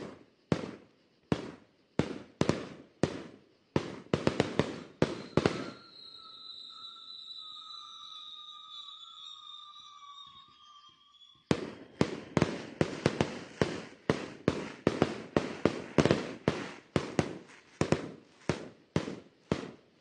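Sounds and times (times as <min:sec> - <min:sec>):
fireworks bangs: 0:00.0 - 0:07.5, 0:11.5 - 0:20.0.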